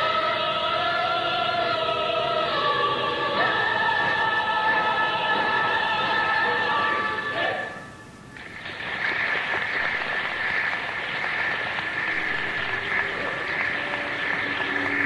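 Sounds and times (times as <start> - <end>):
audience applauding: 8.4 - 15.0.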